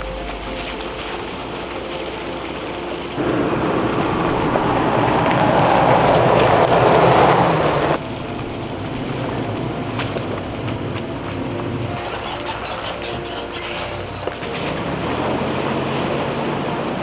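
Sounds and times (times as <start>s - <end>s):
mountain stream rushing: 0.0s - 17.0s.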